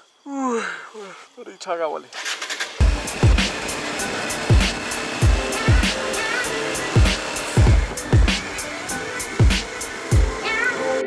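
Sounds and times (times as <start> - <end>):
electronic music with steady beat: 2.8 - 11.0.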